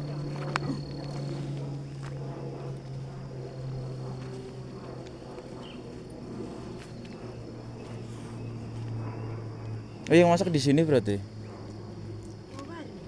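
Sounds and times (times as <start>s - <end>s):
high insect drone: 0.0s - 13.0s
steady low hum: 0.0s - 13.0s
faint footsteps: 0.2s - 10.2s.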